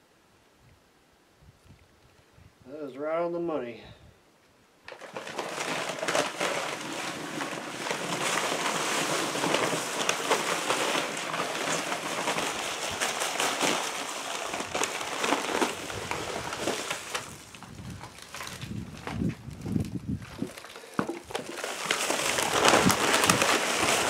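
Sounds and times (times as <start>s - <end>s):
dry concrete mix pouring: 4.8s - 24.0s.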